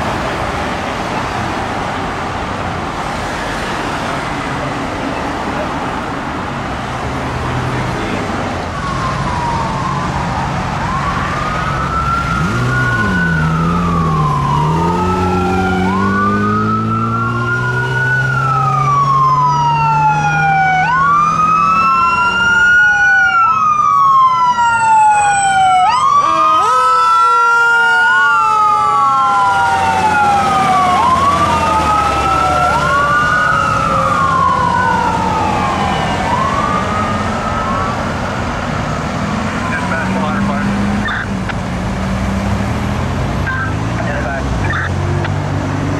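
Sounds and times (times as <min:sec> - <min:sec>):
fire engine siren wailing: 0:08.0 - 0:42.0, 0:42.6 - 0:45.9
low siren tone: 0:08.7 - 0:38.1.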